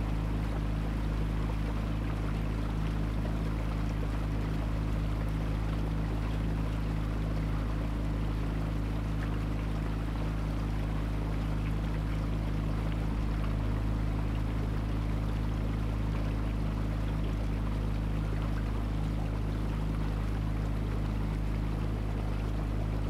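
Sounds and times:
boat engine humming: 0.0s - 23.0s
water rushing along hull: 0.0s - 23.0s.

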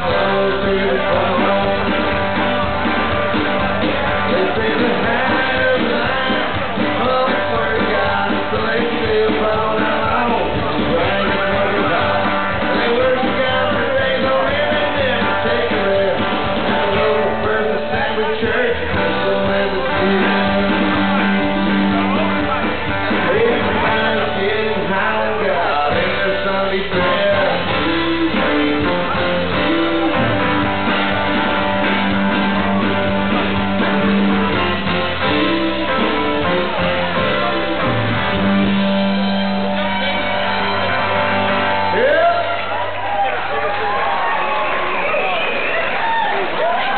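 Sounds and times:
man singing: 0.0s - 2.7s, 3.6s - 30.4s
strummed acoustic guitar: 0.0s - 42.2s
country-rock band playing: 0.0s - 46.9s
drums: 0.0s - 46.9s.

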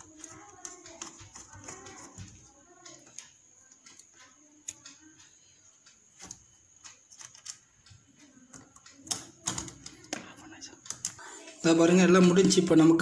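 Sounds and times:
clicks and taps handling wires: 0.0s - 11.2s.

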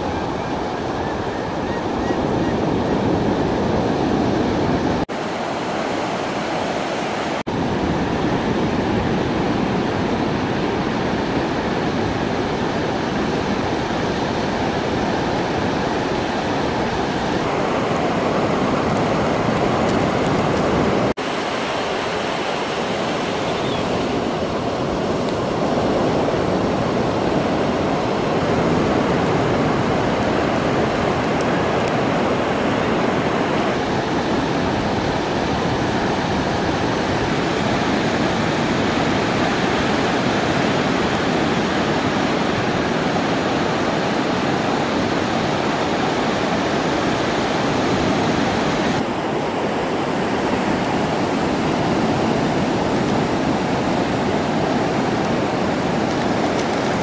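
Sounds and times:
ocean waves breaking: 0.0s - 57.0s.

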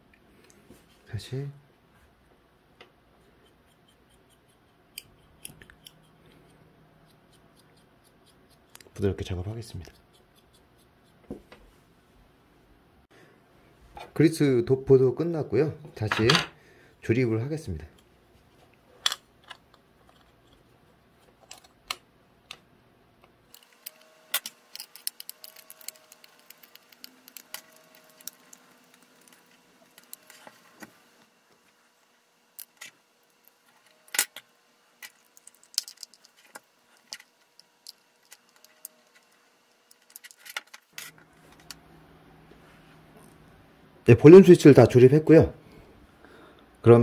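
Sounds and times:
plastic parts clicking and knocking: 23.5s - 30.5s, 35.0s - 39.3s, 39.9s - 41.0s.

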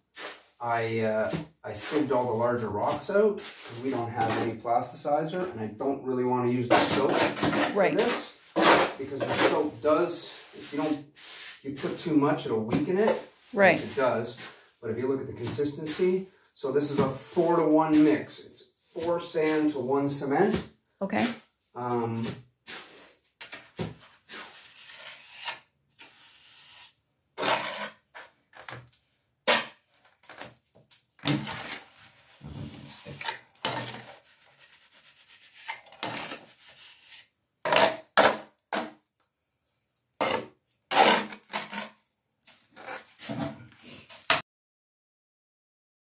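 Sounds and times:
trowel scraping mortar: 6.7s - 9.8s, 23.6s - 28.8s, 31.3s - 38.4s, 40.2s - 42.0s.

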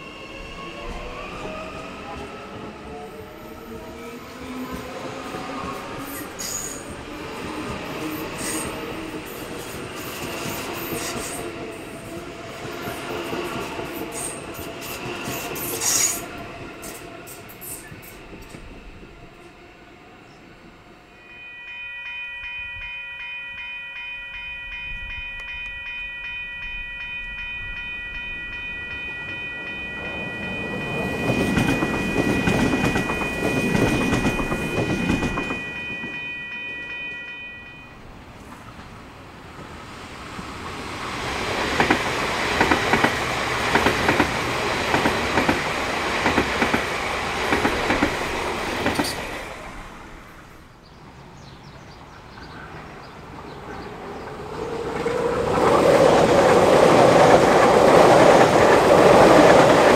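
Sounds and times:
train wheels rumbling: 24.7s - 37.4s, 38.0s - 50.6s, 52.2s - 59.9s
multi-tone warning signal: 26.9s - 38.0s.

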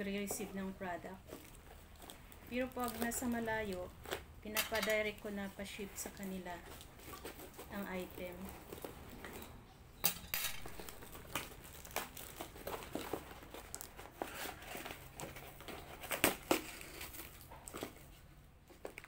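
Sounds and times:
packing tape being cut: 10.2s - 18.0s.

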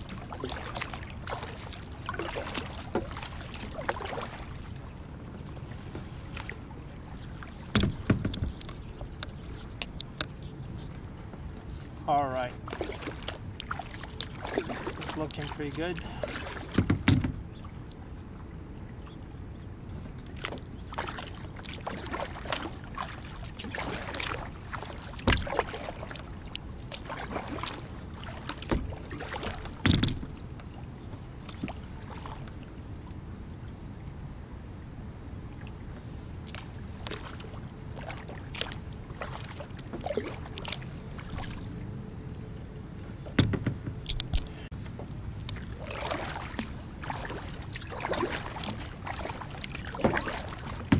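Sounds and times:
paddle splashing into water: 0.0s - 4.9s, 12.6s - 17.4s, 20.4s - 30.5s, 36.5s - 41.7s, 45.5s - 50.9s
water rushing past kayak hull: 0.0s - 6.8s, 12.1s - 17.5s, 20.9s - 30.4s, 36.6s - 42.0s, 45.6s - 50.9s.

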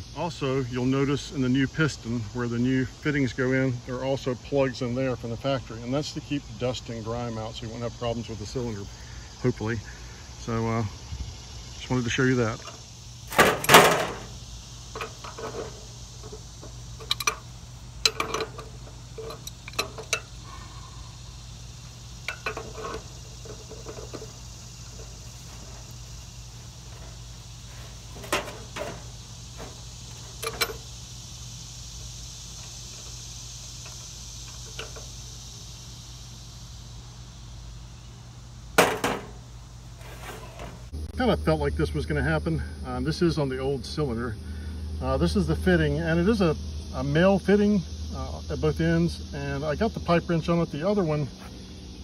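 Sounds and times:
pipe wrench clinking on metal: 14.9s - 20.4s, 22.2s - 25.9s, 29.6s - 30.9s.

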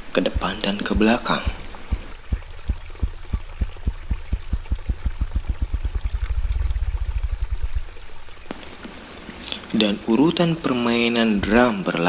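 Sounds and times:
grouse wing drumming thumps: 0.0s - 9.0s.

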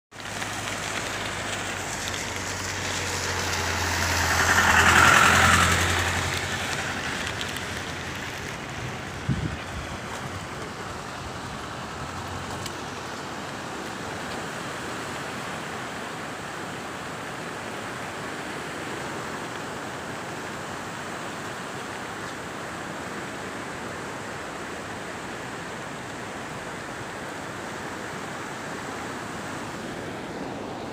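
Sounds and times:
river water rushing: 0.1s - 30.9s
vehicle passing by: 0.2s - 14.0s.

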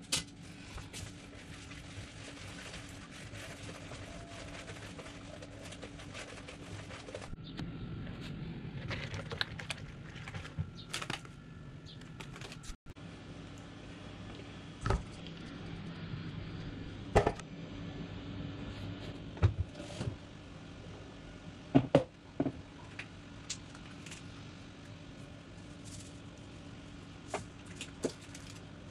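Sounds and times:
steady low hum: 0.0s - 28.9s
spatula mixing batter in bowl: 0.9s - 7.4s.

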